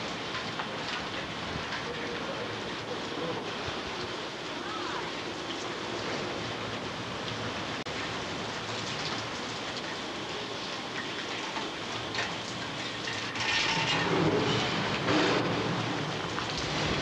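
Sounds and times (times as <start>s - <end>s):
heavy rain on wet pavement: 0.0s - 17.0s.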